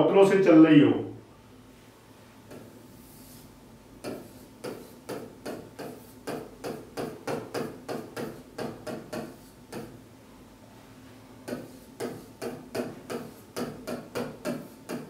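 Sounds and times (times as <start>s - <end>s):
marker pen writing on a board: 2.5s - 10.0s, 11.4s - 15.0s.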